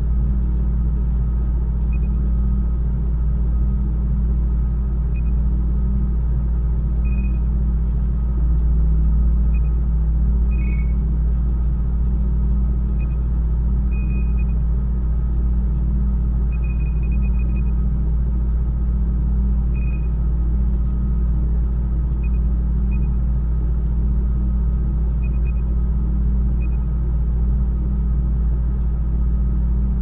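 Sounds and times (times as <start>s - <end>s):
deep machine hum: 0.0s - 2.8s, 3.5s - 30.0s
high electronic beeps: 0.3s - 2.5s, 10.5s - 12.3s.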